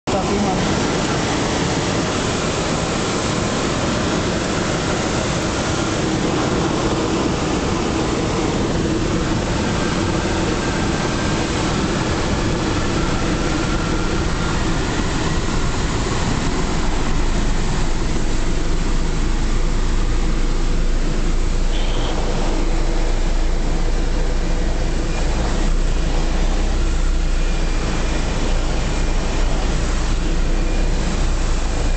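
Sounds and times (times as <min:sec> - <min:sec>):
loud rush of air: 0:00.1 - 0:31.9
faint whistle: 0:21.7 - 0:22.3.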